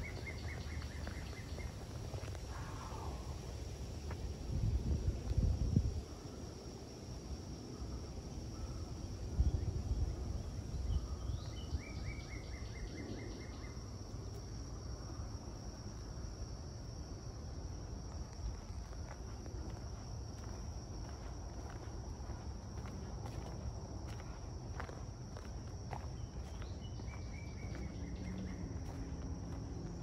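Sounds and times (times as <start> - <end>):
bird singing a trill: 0.0 - 1.8, 10.8 - 13.8, 26.2 - 28.8
insects droning: 0.0 - 30.0.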